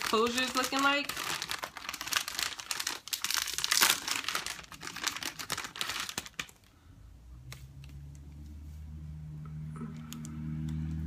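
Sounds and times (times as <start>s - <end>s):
plastic bag crinkling: 0.0s - 6.7s.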